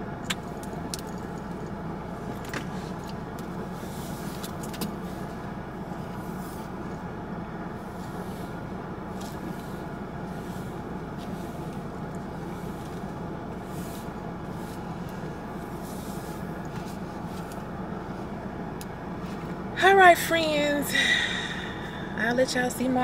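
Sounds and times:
car engine idling: 0.0s - 23.0s.

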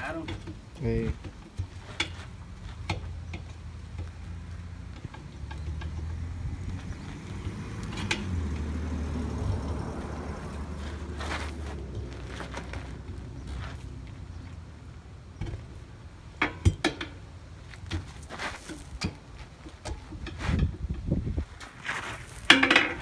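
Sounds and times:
metal knocks and clanks: 0.0s - 8.7s, 15.4s - 21.2s, 22.4s - 23.0s.

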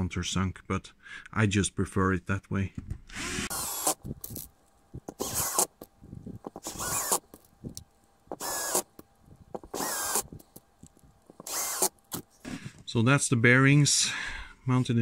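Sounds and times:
power drill driving screws: 3.1s - 4.2s, 5.1s - 5.8s, 6.5s - 7.2s, 8.3s - 8.9s, 9.6s - 10.4s, 11.4s - 12.2s.

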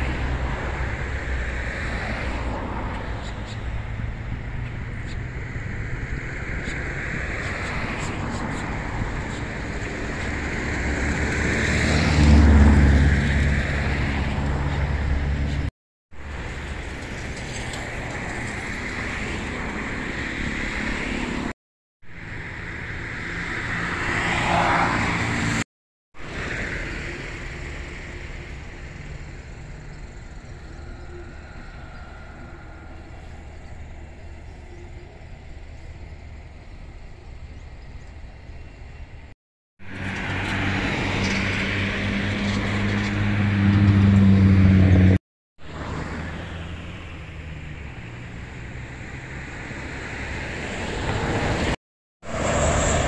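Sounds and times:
vehicle passing with shifting pitch: 0.0s - 15.7s, 22.2s - 25.6s, 39.8s - 53.0s
vehicle passing with deep rumble: 0.0s - 21.5s, 22.1s - 25.6s, 26.2s - 53.0s
steady outdoor rumble: 0.0s - 53.0s.

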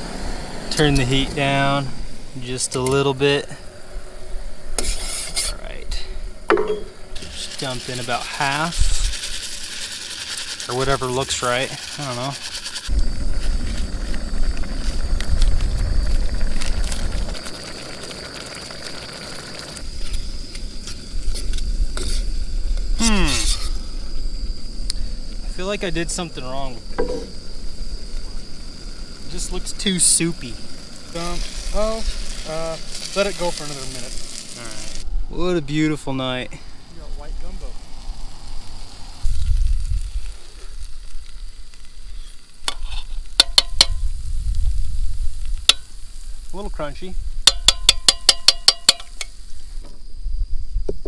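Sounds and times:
utensil clinking and scraping pot: 4.8s - 5.7s
rice pouring into pot: 7.2s - 19.8s
low rumble: 12.9s - 17.5s.

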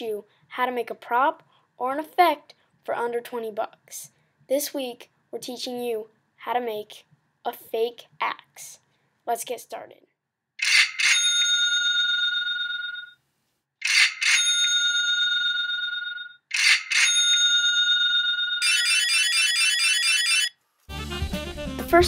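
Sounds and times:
small bell ringing: 10.6s - 13.2s.

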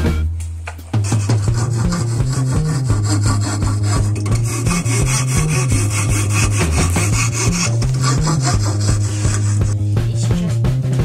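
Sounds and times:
background music with bass: 0.0s - 11.0s
file rasping on wood: 1.0s - 9.8s.

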